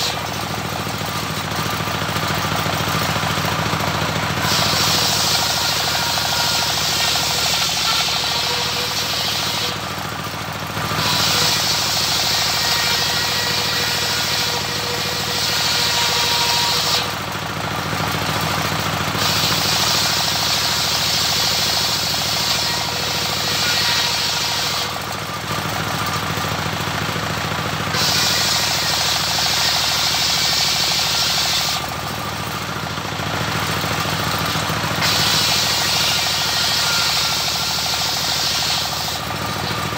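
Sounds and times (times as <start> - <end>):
sawmill engine running: 0.0 - 39.9
saw blade hissing through wood: 4.4 - 9.8, 10.9 - 17.1, 19.2 - 25.0, 27.9 - 31.9, 35.0 - 39.9.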